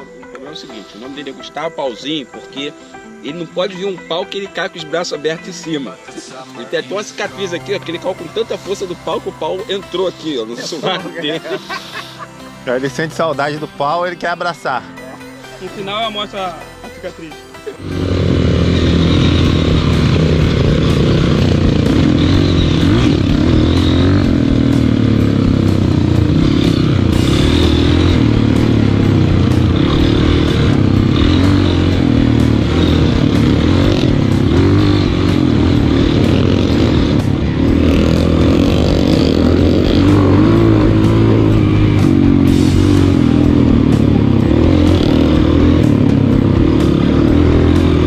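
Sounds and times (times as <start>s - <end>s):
motorcycle engine running: 17.8s - 48.0s.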